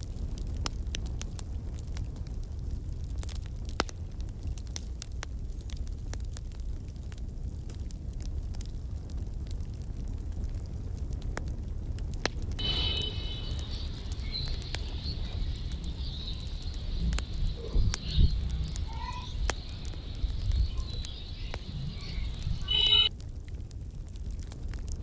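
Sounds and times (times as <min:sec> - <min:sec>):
wind rumbling on microphone: 0:06.6 - 0:25.0
high steady chirping: 0:12.6 - 0:23.1.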